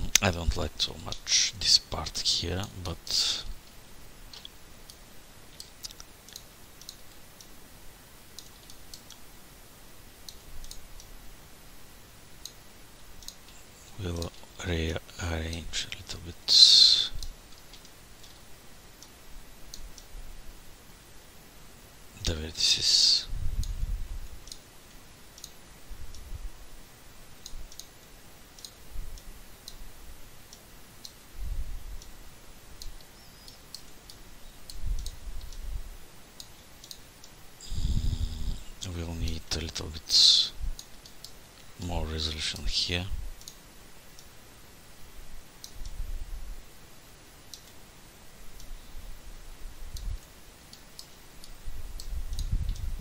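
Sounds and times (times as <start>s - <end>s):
low steady hiss: 0.0s - 53.0s
computer mouse clicking: 3.6s - 7.5s, 8.3s - 9.2s, 10.2s - 11.1s, 12.4s - 13.5s, 17.2s - 20.1s, 25.3s - 26.3s, 27.4s - 29.8s, 32.8s - 35.7s, 36.4s - 37.4s, 43.4s - 43.6s, 47.5s - 47.8s, 49.9s - 52.9s.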